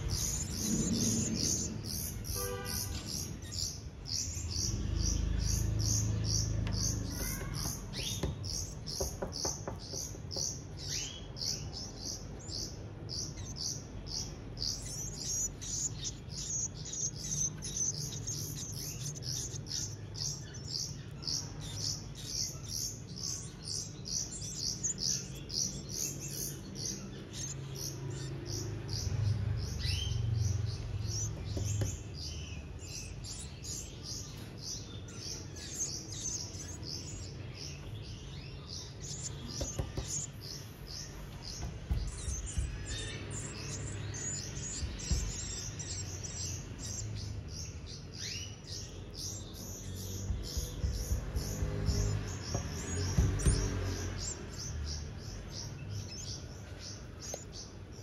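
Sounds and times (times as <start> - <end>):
nestling birds begging chirps: 0.0 - 58.0.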